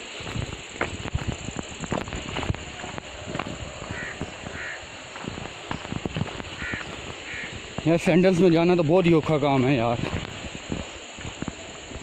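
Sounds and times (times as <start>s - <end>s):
footsteps on stony dirt trail: 0.0s - 12.0s
bird harsh calls: 3.8s - 7.7s.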